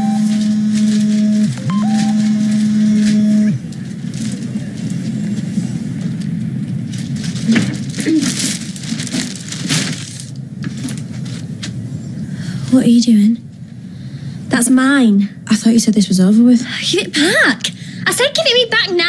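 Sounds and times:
short crackles: 6.1 - 11.8.

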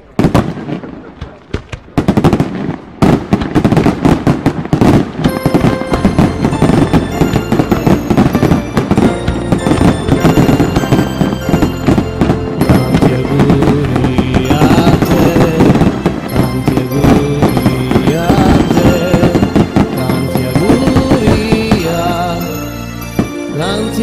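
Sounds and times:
fireworks crackling and banging: 0.0 - 24.0
music: 5.3 - 24.0.

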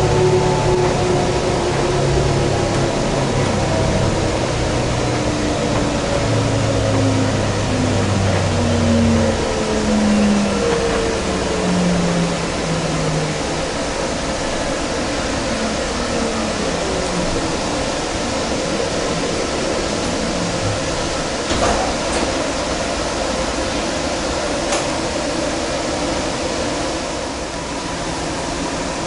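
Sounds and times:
traction motor whine: 0.0 - 21.9
rail car rumble and hiss: 0.0 - 29.0.

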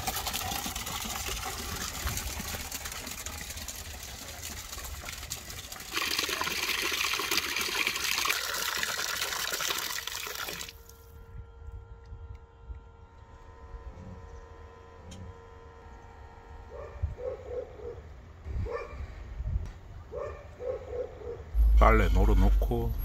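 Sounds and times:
water pouring into a bucket: 0.0 - 11.0.

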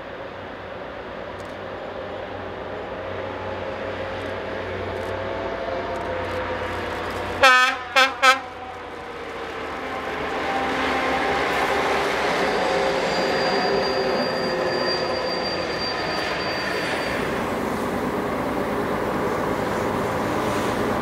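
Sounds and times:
diesel locomotive engine: 0.0 - 21.0
train horn blasts: 7.4 - 8.8.

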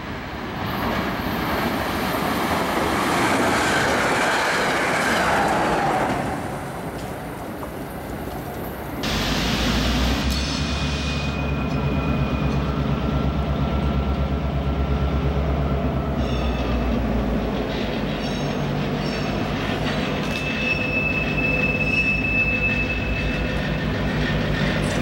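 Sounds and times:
diesel locomotive engine rumble: 0.0 - 25.0
high wheel squeal: 9.0 - 13.3, 17.6 - 25.0.

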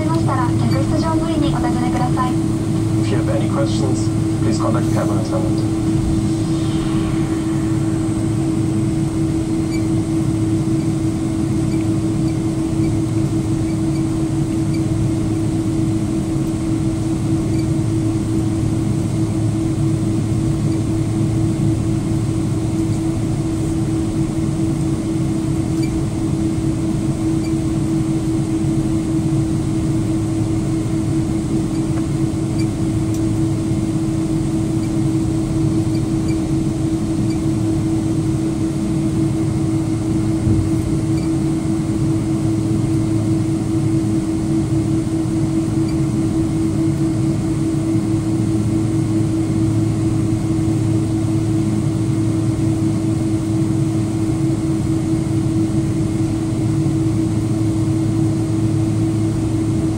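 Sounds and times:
jet engines droning in cabin: 0.0 - 59.9
cabin air rushing: 2.2 - 11.4, 39.8 - 42.7.

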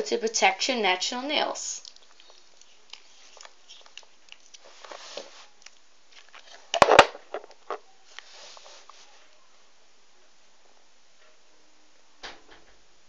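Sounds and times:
faint scraping: 8.0 - 9.4.

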